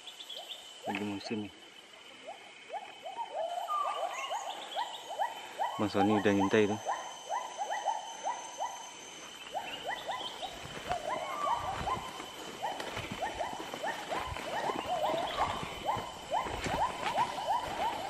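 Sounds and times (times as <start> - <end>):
animal calls chorus: 0.0 - 18.0
footsteps through undergrowth: 9.1 - 18.0.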